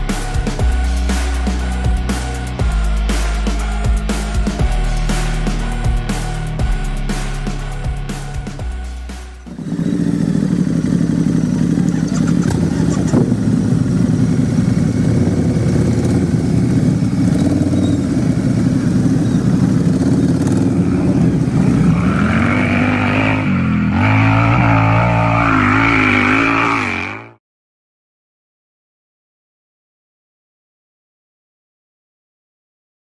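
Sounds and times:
motorcycle engine revving: 8.1 - 27.4.

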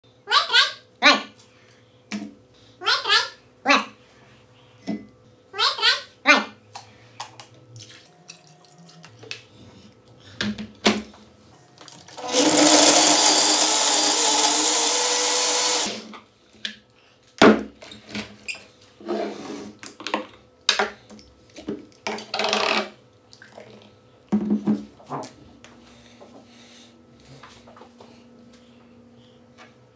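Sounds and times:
blender running: 12.1 - 16.2.

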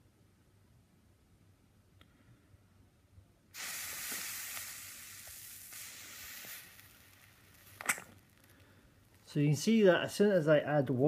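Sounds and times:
chemical sizzling and hissing: 3.6 - 8.6.

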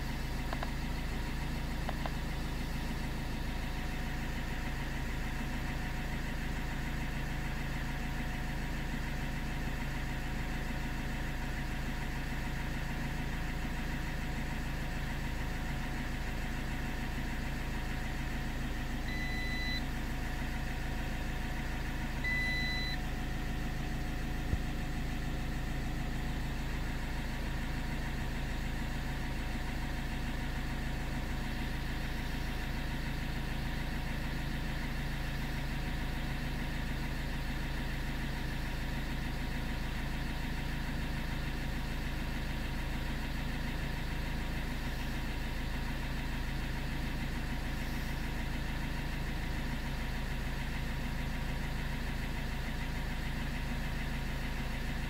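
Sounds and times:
car engine idling: 0.0 - 55.0
short electronic beeps: 19.1 - 19.8, 22.2 - 23.0.

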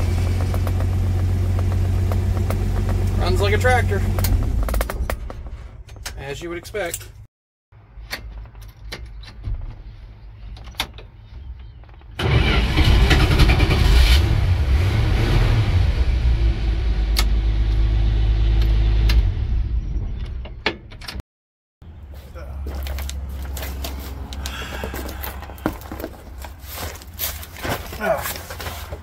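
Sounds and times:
engine cranking and running: 0.0 - 5.5, 12.2 - 14.3.

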